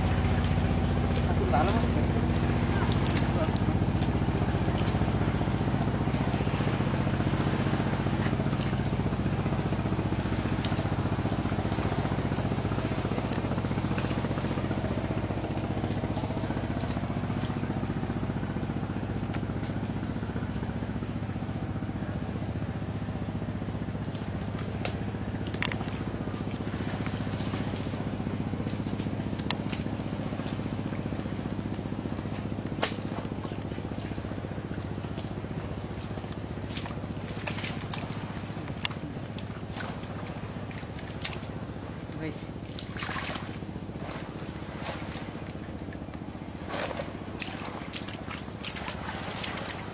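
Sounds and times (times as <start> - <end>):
engine running evenly: 0.0 - 49.9.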